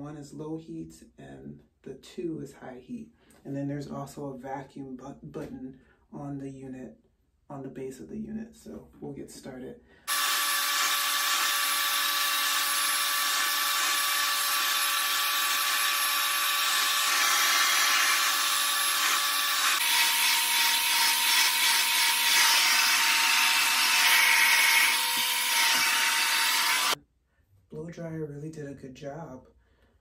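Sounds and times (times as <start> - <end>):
hair dryer running: 10.1 - 27.0.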